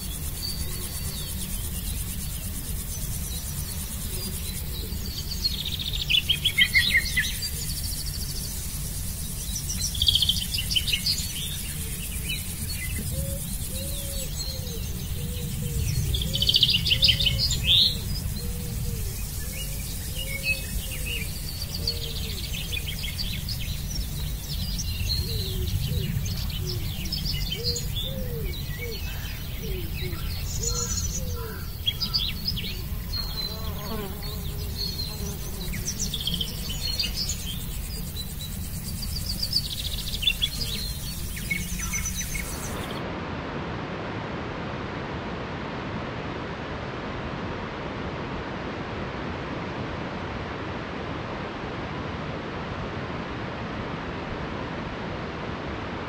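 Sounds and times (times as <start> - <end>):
steady low rumble: 0.0 - 33.4, 34.4 - 56.0
songbirds singing: 0.0 - 43.0.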